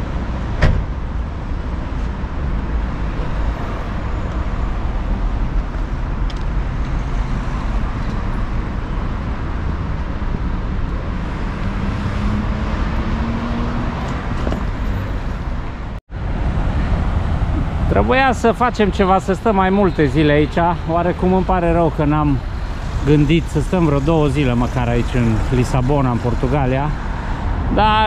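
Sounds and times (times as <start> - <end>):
road traffic rumble: 0.0 - 28.0
vehicle engine pulling away: 11.1 - 15.4.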